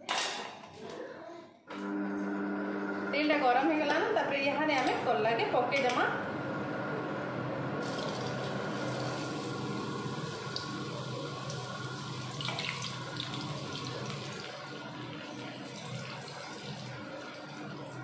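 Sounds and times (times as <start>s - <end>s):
slices sizzling in hot oil: 7.8s - 14.4s.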